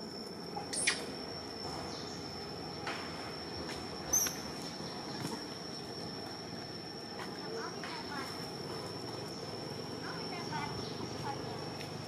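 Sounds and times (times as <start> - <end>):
thin high-pitched whine: 0.0 - 12.0
sharp high chirps: 0.6 - 7.8.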